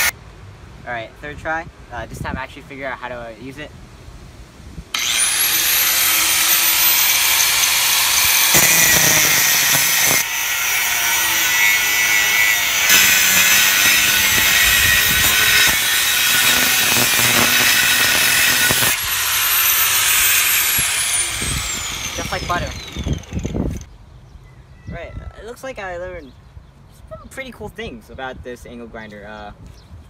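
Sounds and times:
angle grinder cutting steel pipe: 0:05.0 - 0:23.9.

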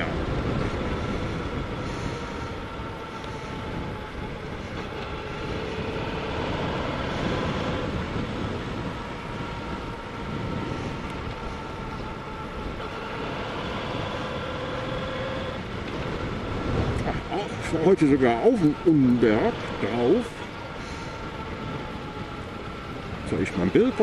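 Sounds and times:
motorcycle engine hum: 0:00.0 - 0:24.0
wind rushing over microphone: 0:00.0 - 0:24.0.

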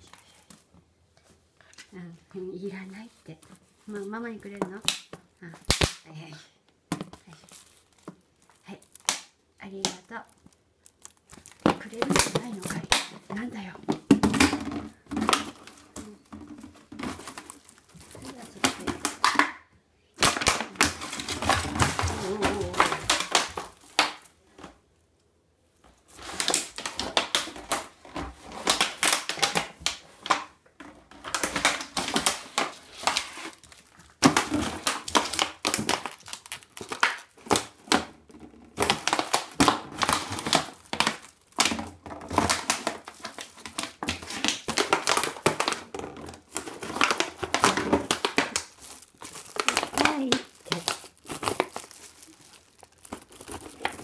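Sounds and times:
plastic bottle crinkling and clattering: 0:06.8 - 0:24.9, 0:25.8 - 0:54.0.

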